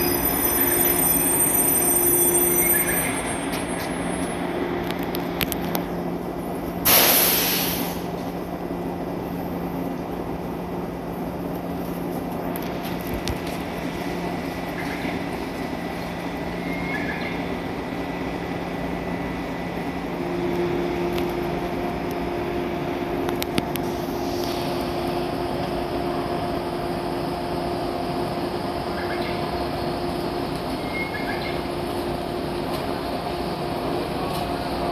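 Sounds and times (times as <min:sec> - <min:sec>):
train equipment humming: 0:00.0 - 0:34.9
brief hiss: 0:06.8 - 0:08.1.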